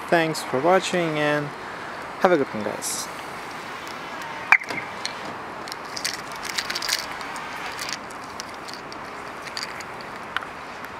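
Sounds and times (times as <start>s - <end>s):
outdoor background noise: 0.0s - 10.9s
car alarm chirp: 4.5s - 4.9s
keys clicking and rattling: 5.6s - 10.4s.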